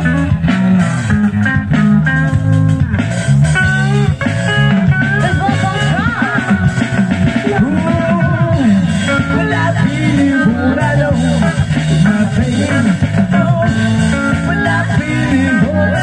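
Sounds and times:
electric guitar: 0.0 - 16.0
live band playing: 0.0 - 16.0
person singing: 4.8 - 16.0.

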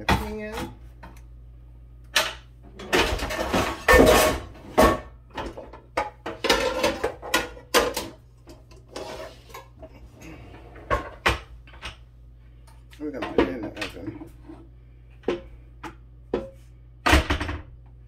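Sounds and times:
metal pots and pans clattering: 2.8 - 9.7.

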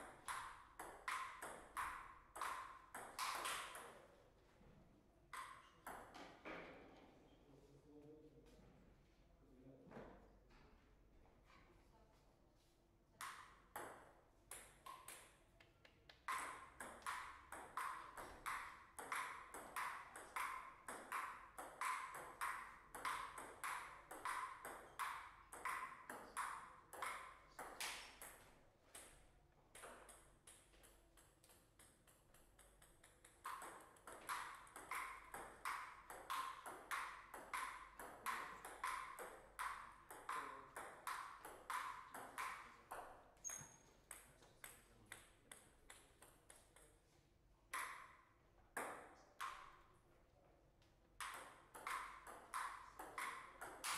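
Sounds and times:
table tennis ball clicking: 0.2 - 3.9, 16.1 - 28.4, 29.8 - 47.0, 51.2 - 53.9.

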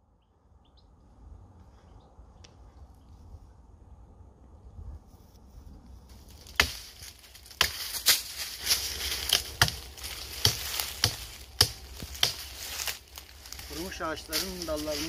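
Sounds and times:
dry leaves crunching: 6.0 - 15.0
dry branches cracking: 6.1 - 15.0.

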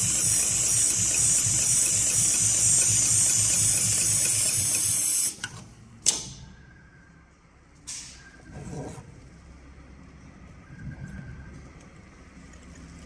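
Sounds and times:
sewing machine stitching: 0.0 - 5.4
pneumatic air hiss bursts: 0.0 - 5.5.

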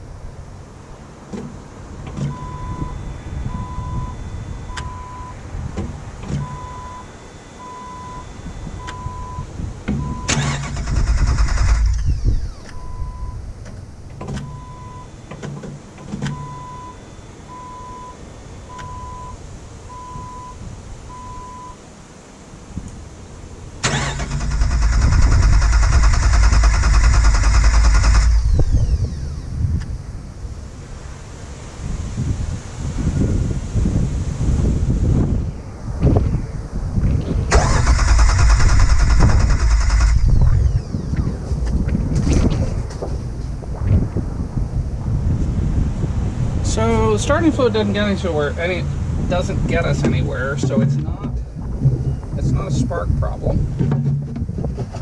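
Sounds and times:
dashboard warning chime beeping: 2.2 - 5.4, 6.3 - 10.6, 12.4 - 13.4, 14.4 - 15.4, 16.2 - 21.8
starter cranking engine: 10.2 - 12.8, 23.8 - 29.4, 37.5 - 41.2.

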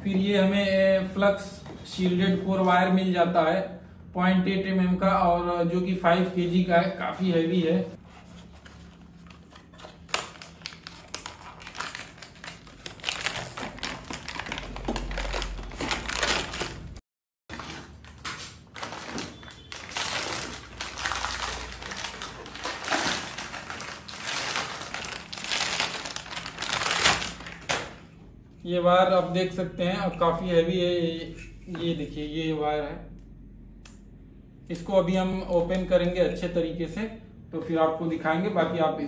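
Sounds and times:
foil wrapping crinkling: 8.0 - 27.8.

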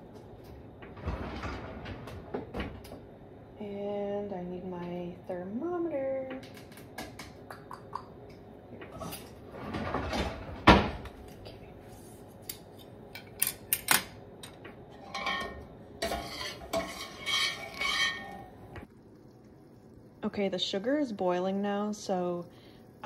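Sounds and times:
kitchen utensils clinking: 14.9 - 18.6
spoon scraping a metal saucepan: 15.0 - 18.5.

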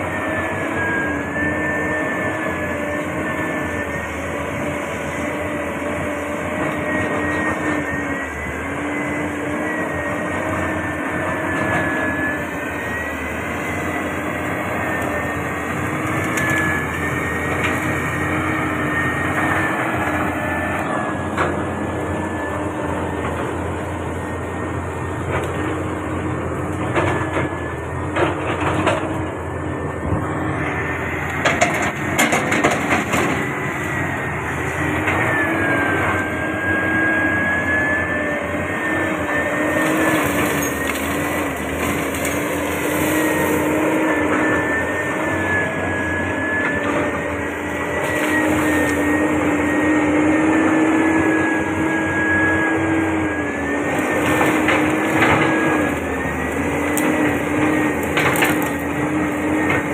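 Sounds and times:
excavator diesel engine running: 0.0 - 59.9
hydraulic whine: 0.0 - 59.9
brush cracking: 39.6 - 44.5, 53.9 - 59.9.

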